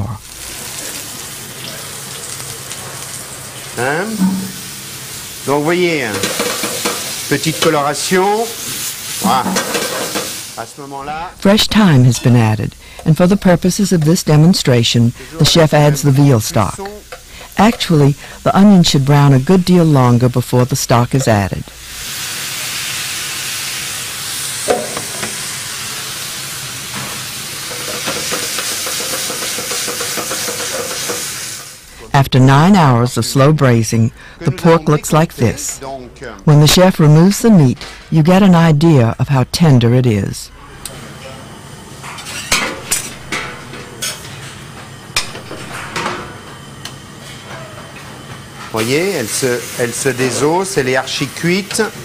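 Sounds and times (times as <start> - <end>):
stock sizzling in pan: 0.0 - 32.1, 40.7 - 52.0
metal utensil knocking pan: 4.2 - 4.7, 6.1 - 7.8.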